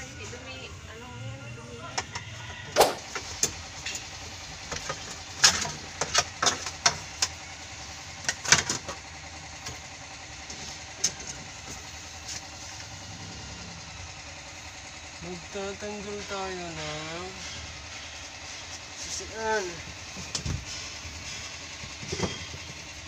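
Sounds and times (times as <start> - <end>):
steady engine-like hum: 0.0 - 23.0.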